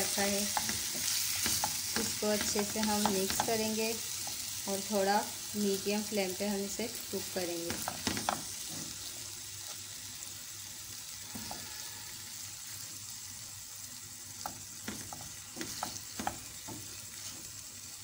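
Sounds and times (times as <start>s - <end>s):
meat sizzling in frying pan: 0.0s - 18.0s
spatula scraping pan: 11.2s - 12.3s, 14.8s - 17.5s.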